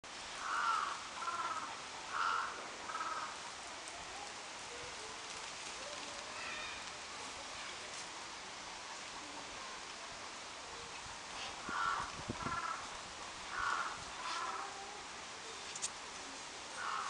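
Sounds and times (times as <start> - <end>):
bird calling: 16.8 - 17.0.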